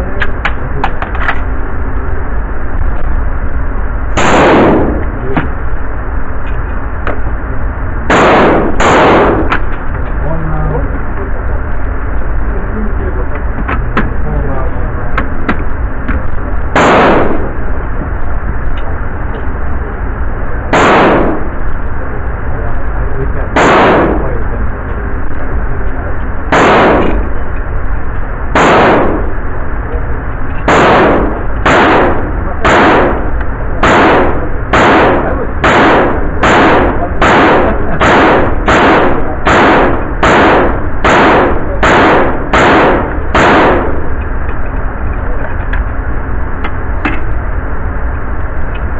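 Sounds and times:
gunshots: 0:04.2 - 0:05.6, 0:08.1 - 0:09.7, 0:16.7 - 0:17.7, 0:20.7 - 0:21.7, 0:23.5 - 0:24.6, 0:26.5 - 0:27.4, 0:28.5 - 0:29.5, 0:30.6 - 0:44.2.

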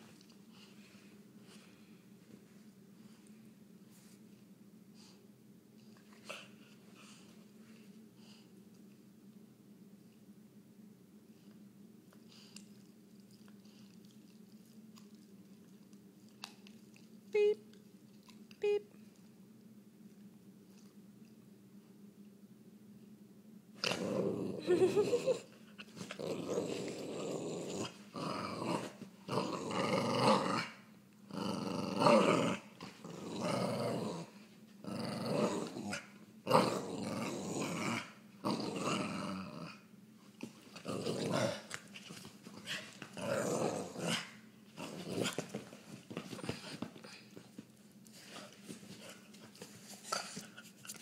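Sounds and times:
dog play-growling: 0:23.8 - 0:51.0.

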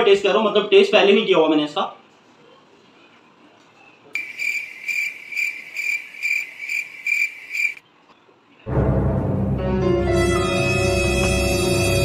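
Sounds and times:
cricket chirps: 0:04.2 - 0:07.8.

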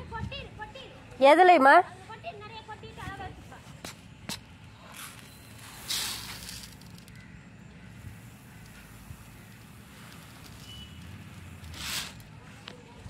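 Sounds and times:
granules rustling in metal pan: 0:04.9 - 0:07.2, 0:08.2 - 0:12.3.

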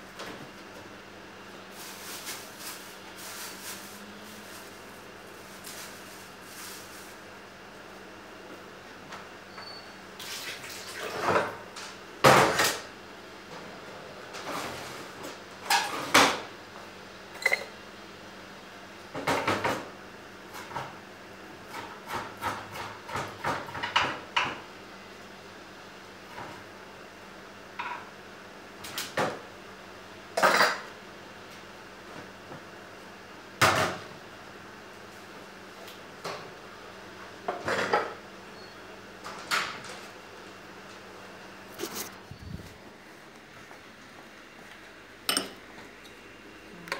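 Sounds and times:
pots and dishes clinking: 0:17.4 - 0:17.7, 0:30.4 - 0:30.9, 0:45.3 - 0:45.6.

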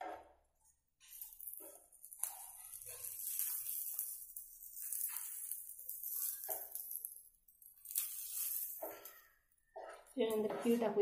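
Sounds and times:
chillies sizzling in oil: 0:01.0 - 0:11.0
wooden spatula scraping pan: 0:01.6 - 0:04.0, 0:08.0 - 0:11.0.

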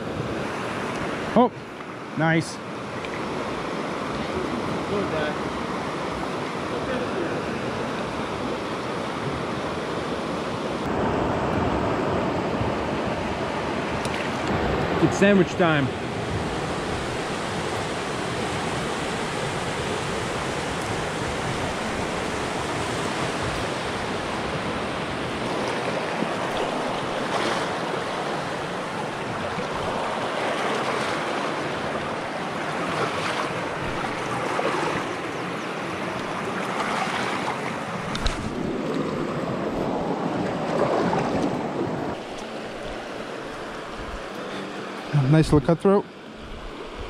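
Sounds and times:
river rushing over rocks: 0:13.0 - 0:45.5.

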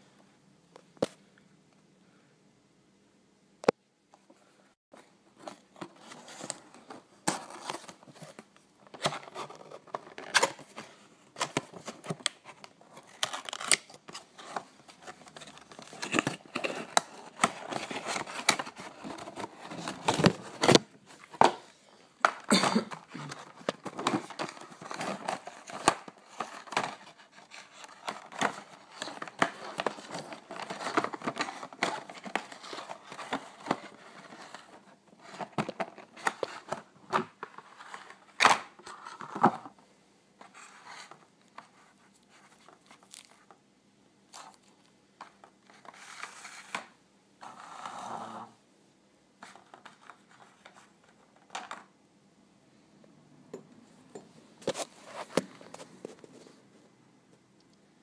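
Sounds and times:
plastic crinkling and rustling: 0:05.0 - 0:39.7.

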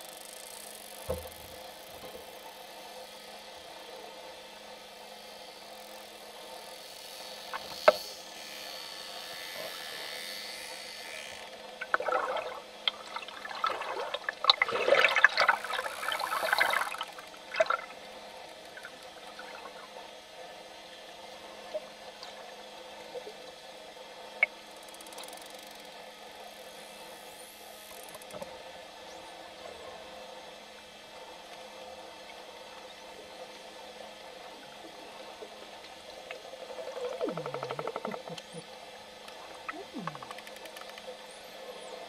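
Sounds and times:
bubbling and splashing: 0:11.8 - 0:20.0, 0:36.0 - 0:38.7, 0:39.4 - 0:40.6.

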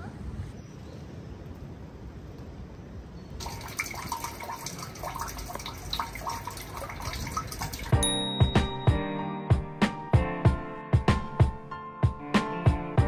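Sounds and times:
water dripping into a drain: 0:03.4 - 0:08.0
music with a beat: 0:08.0 - 0:13.0.

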